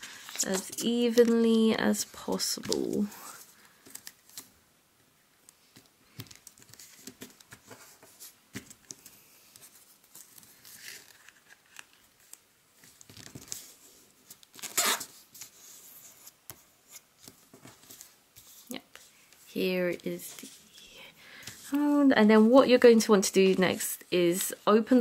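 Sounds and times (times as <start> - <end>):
paper rustling and crinkling: 0.0 - 4.5, 5.7 - 25.0.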